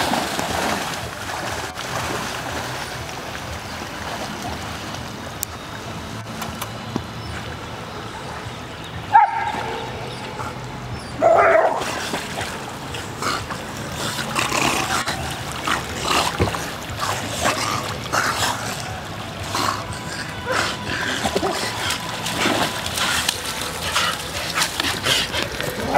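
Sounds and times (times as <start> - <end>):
dogs splashing through water: 0.0 - 25.9
dog barking: 9.1 - 9.9, 11.2 - 11.8.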